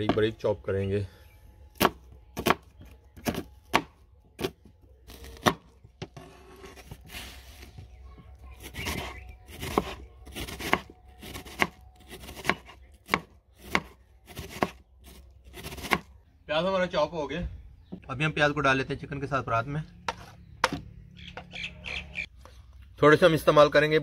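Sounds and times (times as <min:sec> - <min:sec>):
knife scraping: 0:06.0 - 0:07.6
knife chopping onion: 0:08.6 - 0:16.1.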